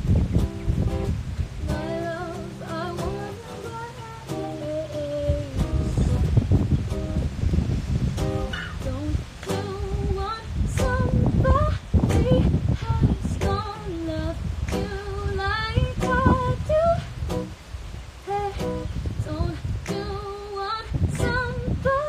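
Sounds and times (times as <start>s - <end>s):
acoustic guitar: 0.0s - 22.0s
woman singing: 1.6s - 6.6s, 8.6s - 17.2s, 18.2s - 22.0s.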